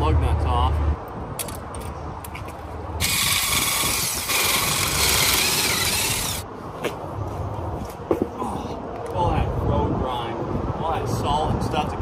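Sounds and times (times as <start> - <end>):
impact wrench rattling: 3.0 - 6.4.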